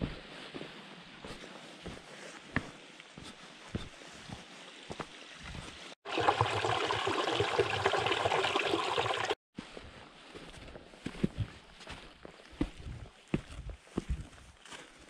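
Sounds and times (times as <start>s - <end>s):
stream trickling over rocks: 4.7s - 9.4s.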